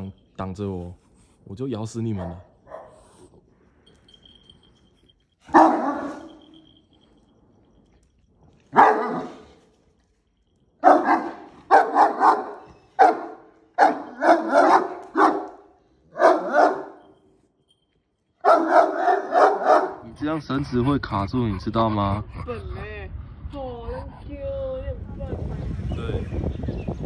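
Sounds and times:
dogs barking: 2.1s - 3.2s, 5.5s - 6.7s, 8.7s - 9.5s, 10.8s - 17.1s, 18.4s - 22.7s.

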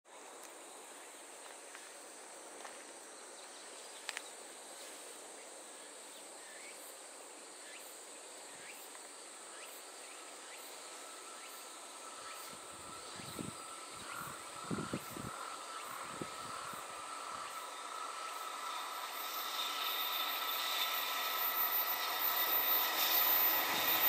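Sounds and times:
insects droning: 0.1s - 24.0s.

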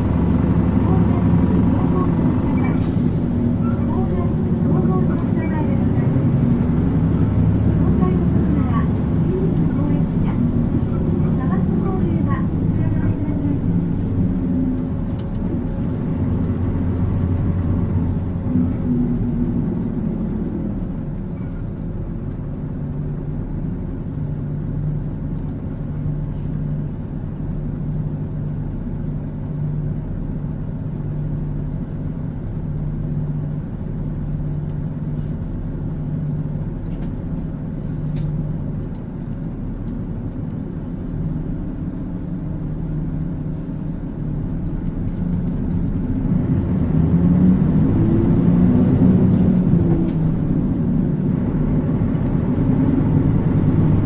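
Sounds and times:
bus diesel engine running: 0.0s - 54.0s.

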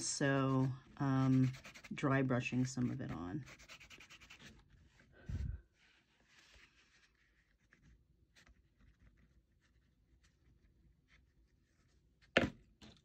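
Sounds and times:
wax crayon scratching on cardstock: 0.4s - 4.6s.

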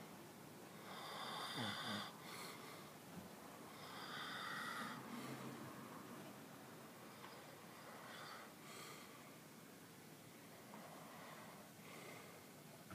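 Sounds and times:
man snoring: 0.8s - 2.2s, 3.8s - 5.0s.

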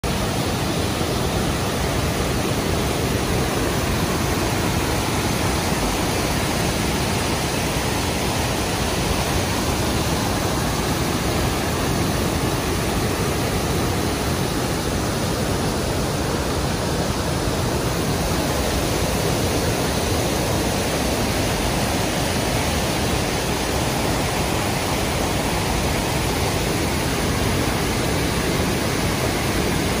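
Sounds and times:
water rushing over rocks: 0.0s - 30.0s.

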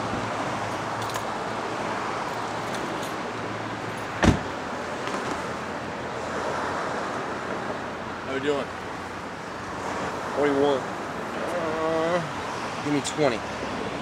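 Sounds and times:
street traffic noise: 0.0s - 14.0s
car door slamming: 4.2s - 5.4s.

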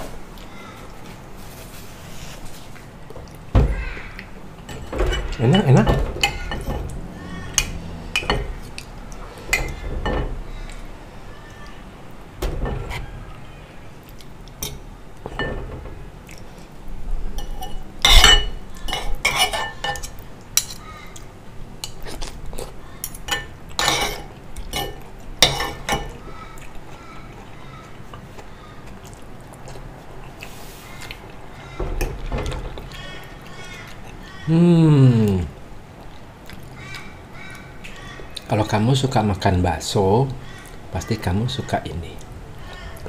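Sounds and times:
cutlery clinking against bowls: 4.7s - 10.8s, 17.4s - 20.8s, 21.8s - 26.8s.

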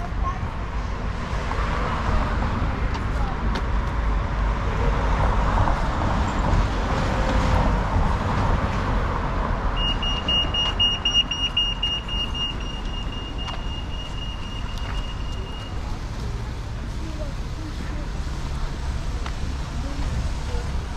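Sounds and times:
road traffic passing: 0.0s - 20.9s
high-pitched rapid crossing beeps: 9.8s - 15.8s.

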